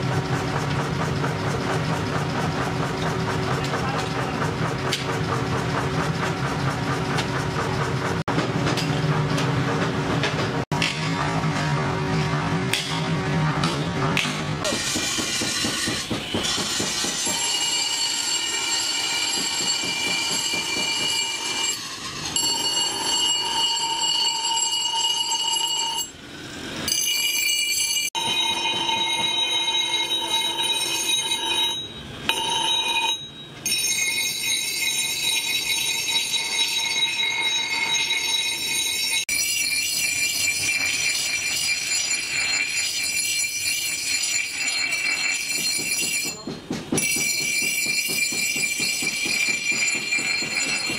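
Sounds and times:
metallic screech of grinder: 16.8 - 46.3.

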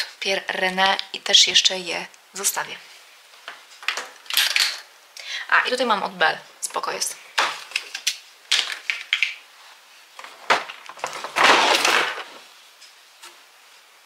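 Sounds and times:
rustling scrape: 9.6 - 13.9.

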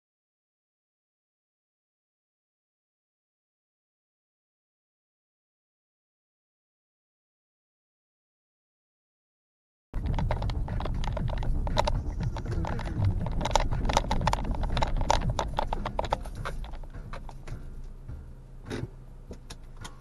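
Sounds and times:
rattles and knocks from bumps: 10.0 - 17.7
car road rumble: 10.0 - 20.0.

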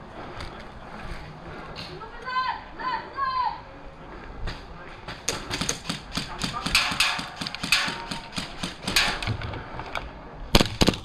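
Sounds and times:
sharp loud cracks: 5.3 - 9.4, 10.5 - 11.0.

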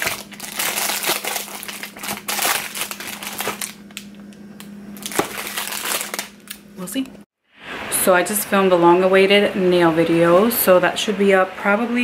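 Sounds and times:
rustling and crinkling handling noise: 0.0 - 6.6.

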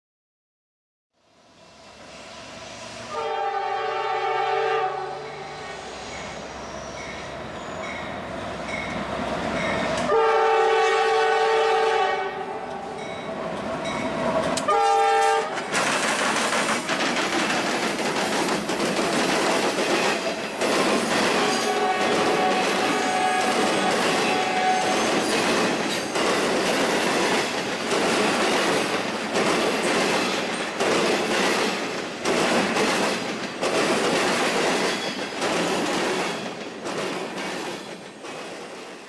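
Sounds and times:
diesel locomotive engines: 1.2 - 39.0
locomotive air horn blasts: 3.1 - 5.6, 10.0 - 12.9, 14.7 - 15.6, 21.4 - 25.1
steel wheels on rails: 5.2 - 10.2, 12.6 - 39.0.

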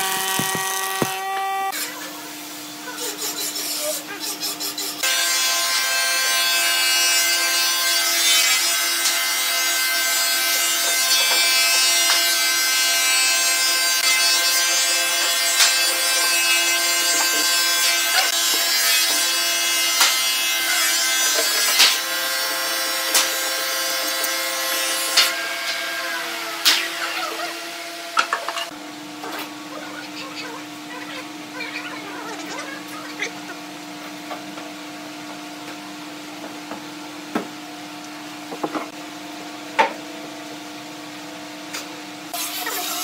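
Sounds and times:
wood knocking: 0.0 - 1.2
woodworking machinery whine: 0.0 - 35.5.

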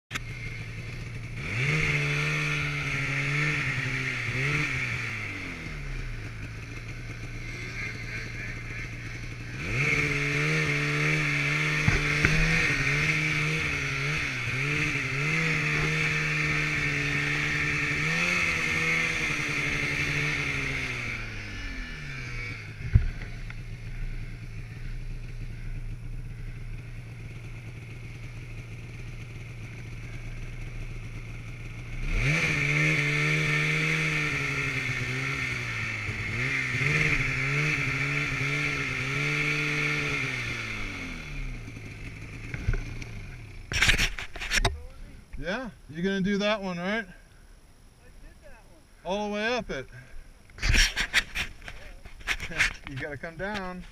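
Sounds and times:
snowmobile engine revving: 0.1 - 47.2, 48.1 - 53.9
sharp thump: 11.7 - 13.0.

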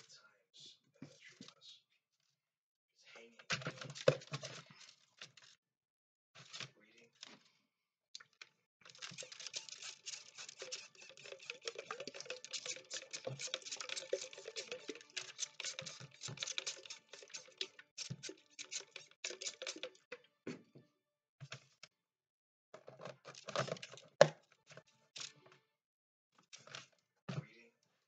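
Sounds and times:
dry crackling and tapping: 8.2 - 20.2.

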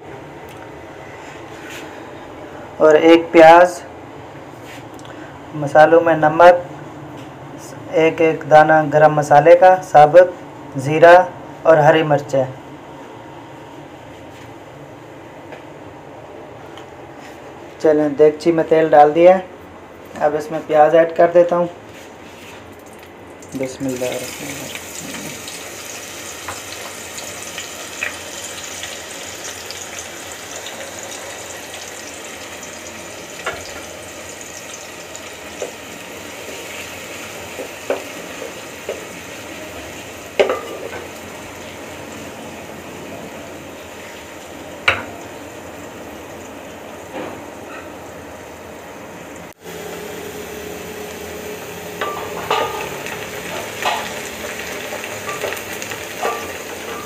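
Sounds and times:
onions sizzling in oil: 22.8 - 42.7, 43.3 - 47.2, 49.6 - 57.0.

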